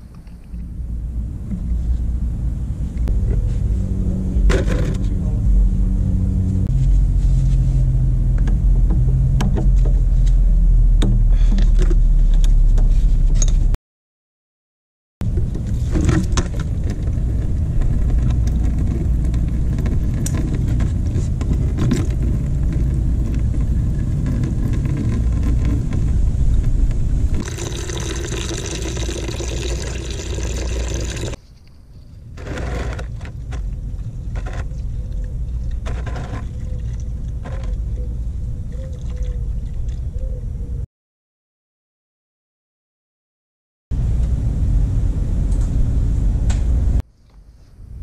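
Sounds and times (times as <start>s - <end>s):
low rumble: 0.6s - 13.8s, 15.2s - 27.6s, 43.9s - 47.0s
liquid splashing into plastic bucket: 27.4s - 31.4s.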